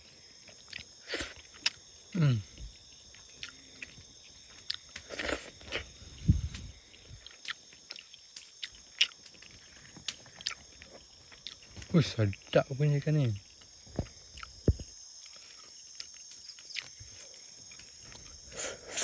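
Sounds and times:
night insects chorus: 0.0s - 19.0s
person humming mm: 2.2s - 2.5s
person eating lip smacks: 3.4s - 4.0s.

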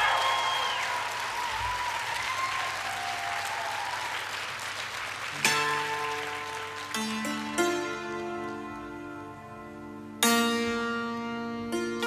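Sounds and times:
cimbalom notes ringing: 5.4s - 12.0s.

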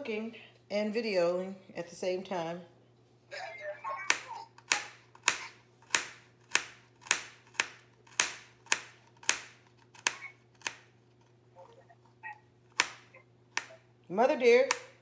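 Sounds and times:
knife chopping on cutting board: 4.1s - 10.9s, 12.8s - 13.8s.

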